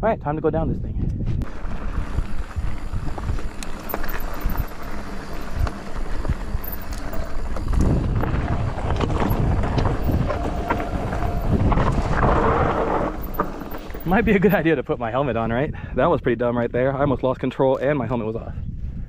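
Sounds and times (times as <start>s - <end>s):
wind buffeting microphone: 0.0s - 19.0s
tyres crunching over gravel: 1.4s - 14.7s
bike rattling clicks and knocks: 1.5s - 14.6s.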